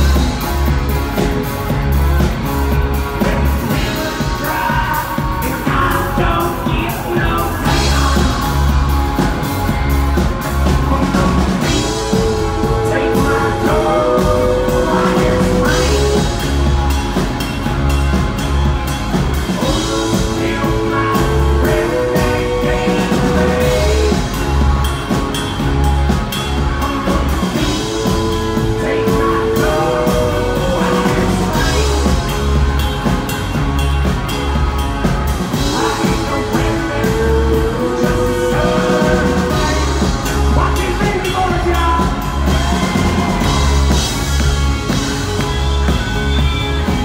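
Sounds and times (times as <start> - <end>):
drum kit: 0.0 - 47.0
electric guitar: 0.0 - 47.0
pulsing bass line: 0.0 - 47.0.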